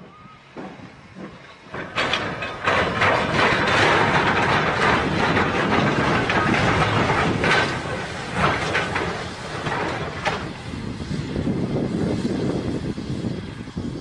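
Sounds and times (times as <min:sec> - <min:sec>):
steam train passing: 0:00.0 - 0:14.0.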